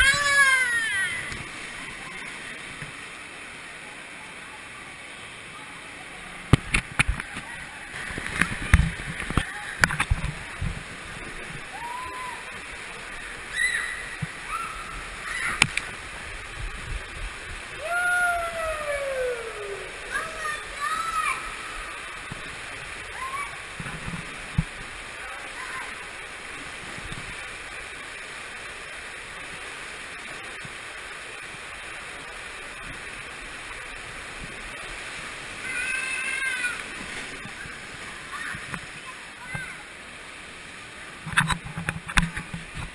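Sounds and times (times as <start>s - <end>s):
water rushing and sloshing: 0.0s - 42.9s
person yelling: 17.8s - 21.3s.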